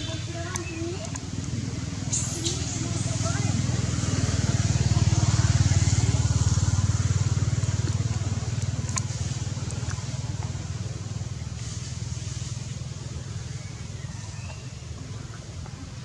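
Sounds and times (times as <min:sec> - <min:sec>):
small engine running: 0:00.0 - 0:14.3
faint clicks: 0:00.4 - 0:01.6, 0:08.2 - 0:10.6.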